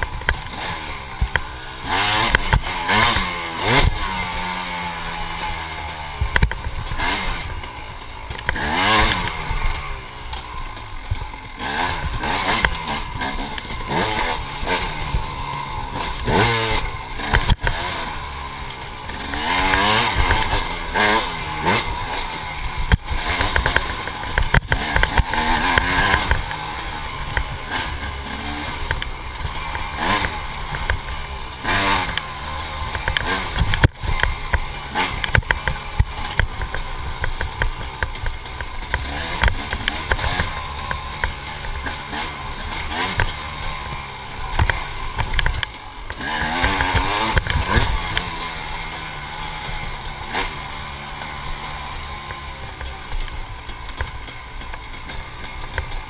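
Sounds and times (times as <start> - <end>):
dirt bike engine revving: 0.0 - 56.0
bike knocking over bumps: 5.2 - 56.0.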